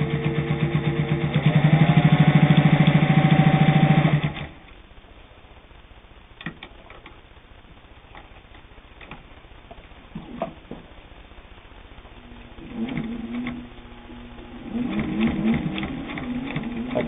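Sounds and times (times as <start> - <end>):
sewing machine stitching: 0.0 - 4.6, 12.6 - 13.7, 14.6 - 17.0.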